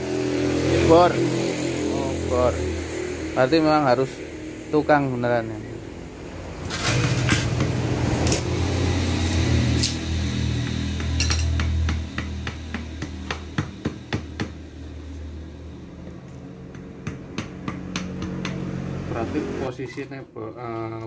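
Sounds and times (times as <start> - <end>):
machete chopping bamboo: 10.6 - 14.6, 16.7 - 18.7.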